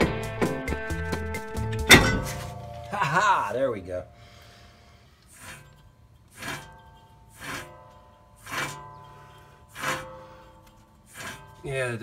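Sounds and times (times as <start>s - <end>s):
wheel bearing spinning rush: 5.1s - 12.0s.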